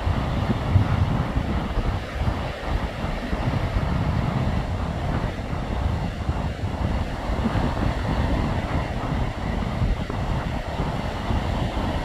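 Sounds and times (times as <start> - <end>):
small waves washing on boulders: 0.0 - 12.0
wind on microphone: 0.0 - 12.0.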